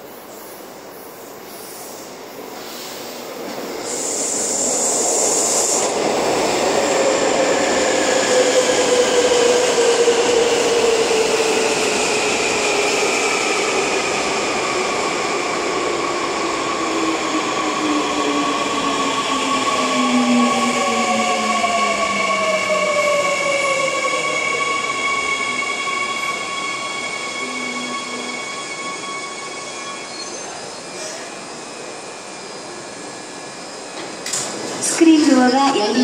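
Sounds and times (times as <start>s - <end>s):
brief high squeal: 26.8s - 31.4s.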